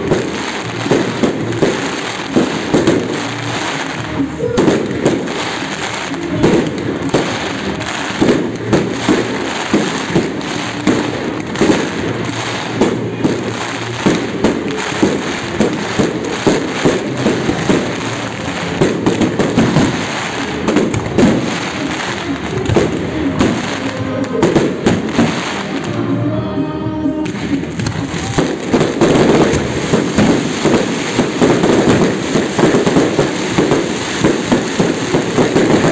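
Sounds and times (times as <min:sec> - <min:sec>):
continuous rushing noise: 0:00.0 - 0:35.9.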